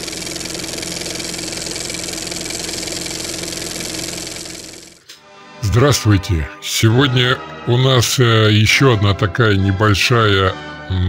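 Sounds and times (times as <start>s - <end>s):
mechanical drone with low hum: 0.0s - 6.3s.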